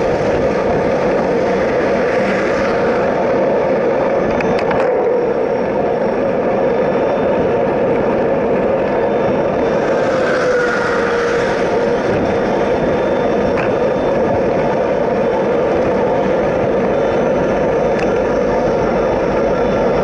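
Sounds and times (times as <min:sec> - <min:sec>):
truck passing: 0:00.0 - 0:04.3, 0:09.4 - 0:17.8
wind and road noise: 0:00.0 - 0:20.0.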